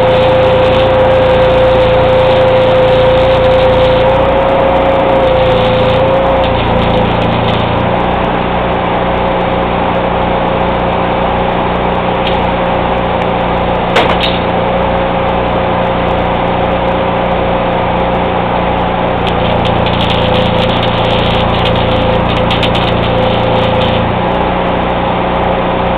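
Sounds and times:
welding generator engine running: 0:00.0 - 0:25.9
sharp metallic knock: 0:14.0 - 0:14.5.

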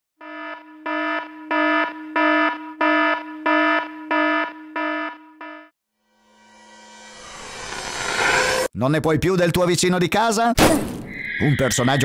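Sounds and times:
electronic alarm buzzer pulsing: 0:00.2 - 0:08.7.

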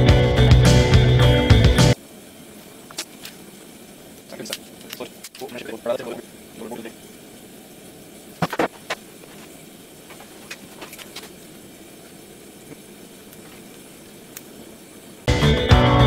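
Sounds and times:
gas forge burner rushing: 0:00.4 - 0:15.8
lighter ticks: 0:12.7 - 0:14.6.

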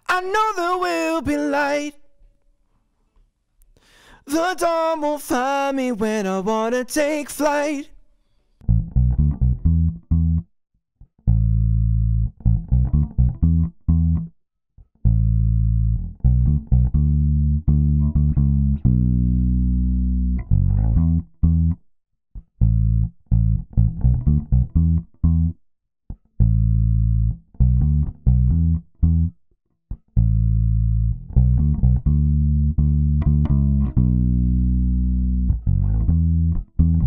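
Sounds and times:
electric bass guitar notes: 0:08.6 - 0:10.5, 0:11.2 - 0:14.3, 0:15.0 - 0:21.8, 0:22.4 - 0:37.0.

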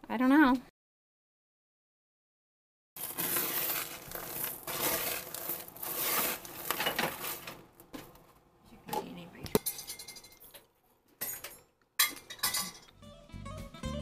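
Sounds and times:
spatula stirring crunchy granola: 0:03.0 - 0:07.6.

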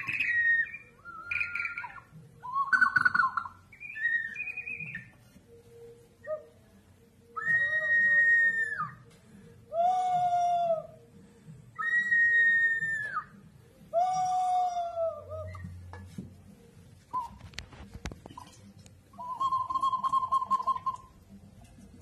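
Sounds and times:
clay whistling jar calls: 0:00.0 - 0:05.2, 0:17.1 - 0:17.6, 0:18.3 - 0:21.3.

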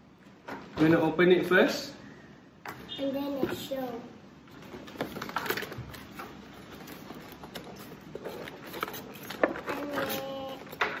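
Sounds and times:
cardboard packaging rustling: 0:04.5 - 0:11.0.

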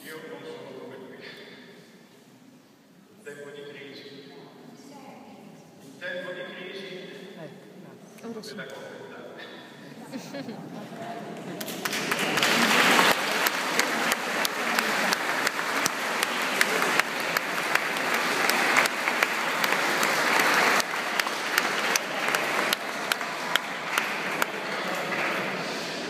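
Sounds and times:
congregation applauding: 0:10.9 - 0:26.0.

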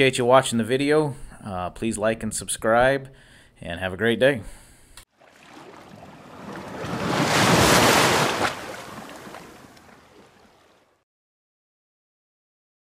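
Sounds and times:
wave washing onto beach: 0:05.2 - 0:10.9.

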